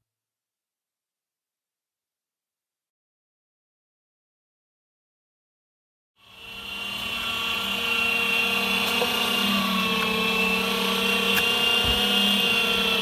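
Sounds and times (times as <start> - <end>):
meat grinder motor whine and hum: 6.2 - 13.0.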